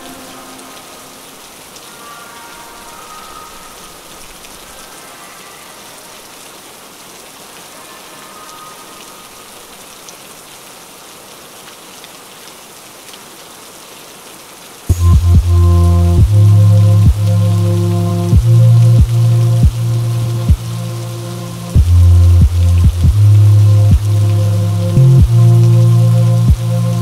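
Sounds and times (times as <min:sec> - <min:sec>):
steady rain hiss: 0:00.0 - 0:27.0
drops ticking: 0:14.9 - 0:27.0.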